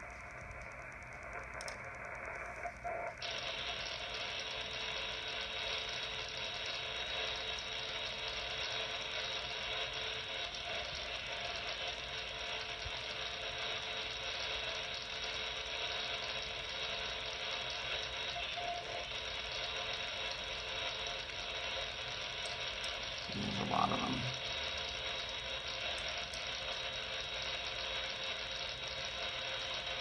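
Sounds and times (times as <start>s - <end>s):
digital pager data signal: 13.8s - 22.6s, 23.2s - 24.4s.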